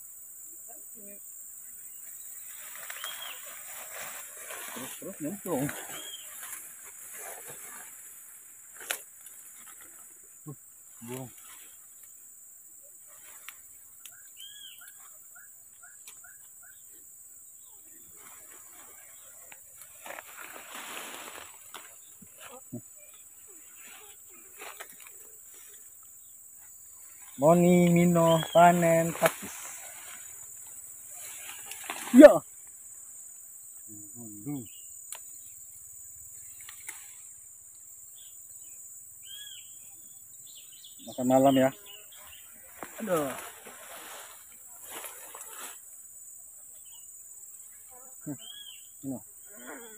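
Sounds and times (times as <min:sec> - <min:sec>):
forest insects droning: 0:00.0 - 0:49.9
fern stems snapping: 0:08.7 - 0:09.9, 0:24.6 - 0:25.2, 0:36.6 - 0:37.1.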